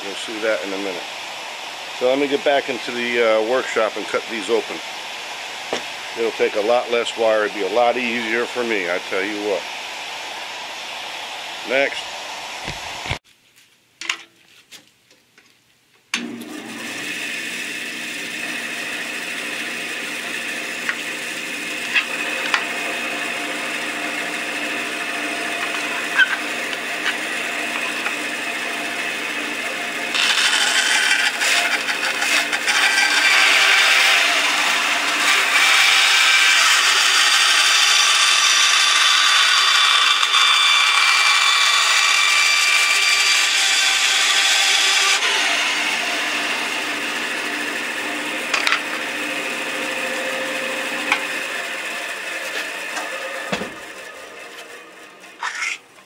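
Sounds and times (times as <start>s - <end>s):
band saw running: 0.0s - 13.2s, 16.2s - 55.9s
band saw cutting plastic: 1.9s - 9.7s, 16.2s - 56.0s.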